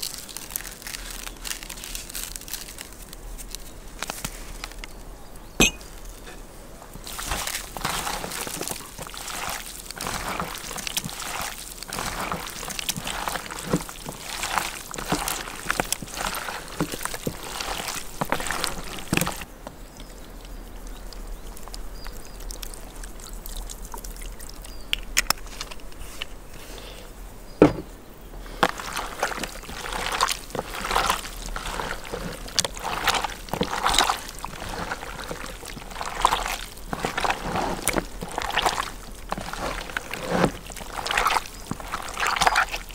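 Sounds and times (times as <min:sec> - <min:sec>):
meat squelching by hand: 0:07.0 - 0:19.5, 0:28.4 - 0:42.9
oil pouring: 0:28.6 - 0:42.9.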